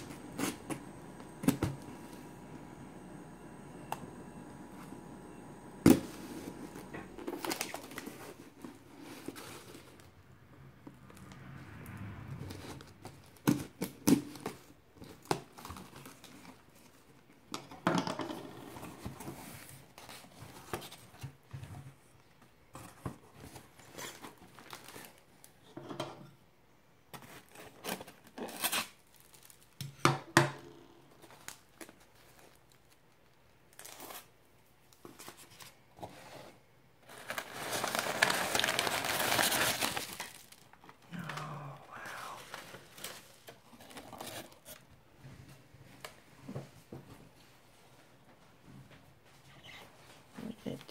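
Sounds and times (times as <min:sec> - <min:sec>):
plastic wrap crinkling and tearing: 0:05.9 - 0:10.1, 0:12.6 - 0:17.2, 0:23.6 - 0:25.6, 0:27.2 - 0:29.8, 0:31.2 - 0:35.7, 0:37.0 - 0:44.9.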